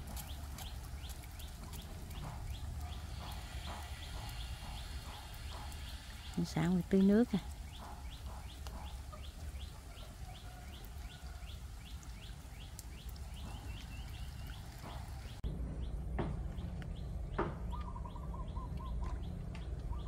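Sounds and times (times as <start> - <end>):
small birds chirping: 0.0 - 20.0
low rumble: 15.3 - 20.0.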